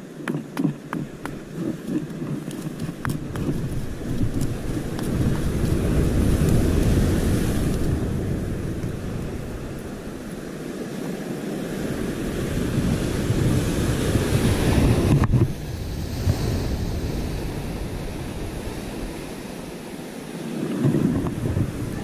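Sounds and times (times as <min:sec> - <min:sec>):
wind buffeting microphone: 0:00.0 - 0:22.0
surf breaking over rocks: 0:00.2 - 0:22.0.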